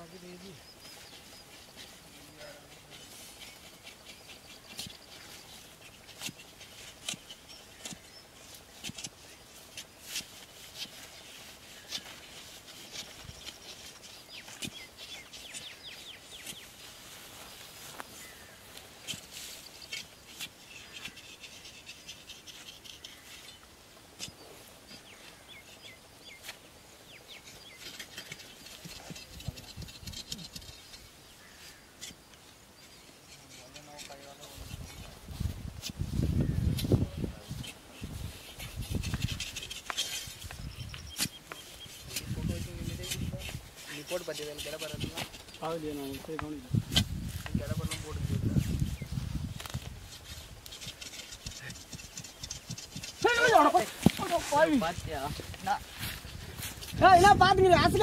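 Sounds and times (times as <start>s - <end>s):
birds chirping: 0.0s - 58.0s
dry grass rustling: 0.0s - 58.0s
grass stalks snapping: 49.5s - 57.0s.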